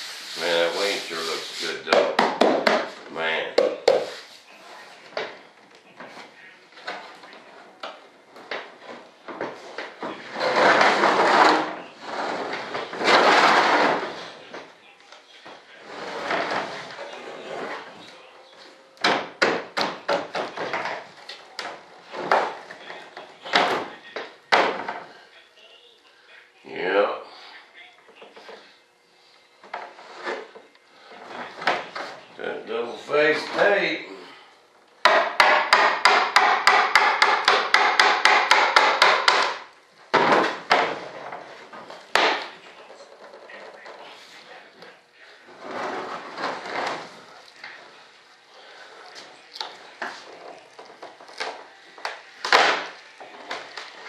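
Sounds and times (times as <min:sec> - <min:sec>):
rubbing and scraping: 0:00.0 - 0:02.0, 0:03.7 - 0:05.1, 0:08.6 - 0:14.5, 0:15.7 - 0:18.2, 0:29.7 - 0:32.3, 0:40.2 - 0:54.0
hand tool tapping a mold: 0:35.0 - 0:39.6
sharp knocks and cracks: 0:35.0 - 0:41.0, 0:50.8 - 0:53.9.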